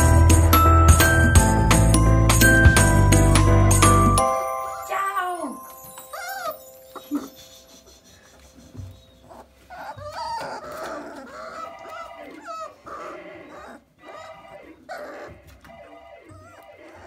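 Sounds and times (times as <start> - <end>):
puppies whining and squealing: 5.8 - 17.0.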